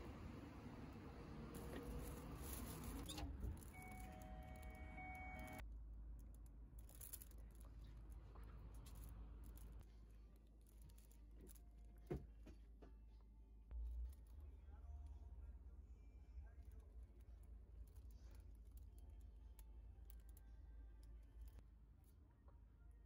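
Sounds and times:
faint steady tones: 0:00.0 - 0:05.6.

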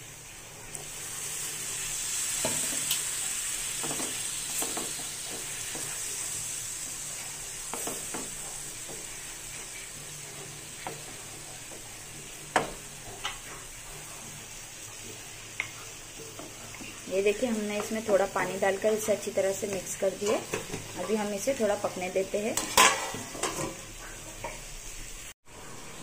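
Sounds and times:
masala sizzling in a pan: 0:00.0 - 0:26.0
spatula scraping and tapping pan: 0:03.7 - 0:06.1, 0:07.6 - 0:13.8, 0:15.2 - 0:21.3, 0:22.5 - 0:24.7.

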